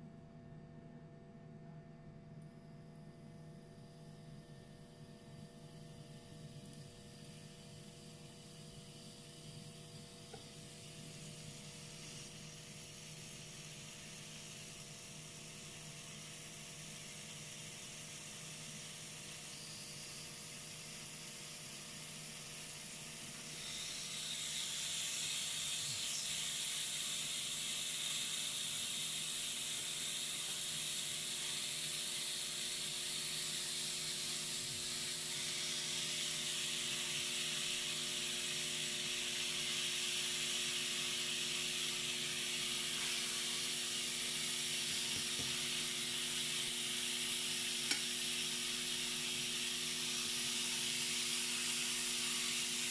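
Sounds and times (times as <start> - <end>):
faint steady hum: 0.0 - 52.9
pork sizzling on a grill: 34.9 - 52.9.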